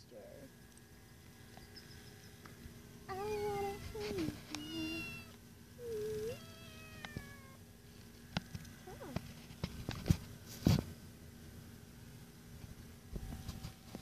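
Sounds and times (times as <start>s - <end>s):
kitten meowing: 3.1s - 7.6s.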